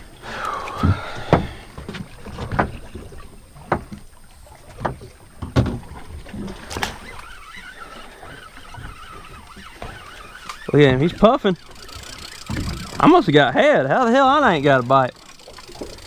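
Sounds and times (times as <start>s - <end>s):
water lapping against hull: 0.0s - 16.0s.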